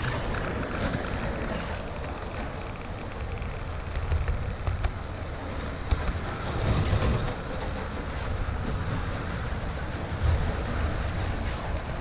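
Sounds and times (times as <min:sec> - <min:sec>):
sharp clicks: 0:00.0 - 0:06.2
model train rumbling on track: 0:00.0 - 0:12.0.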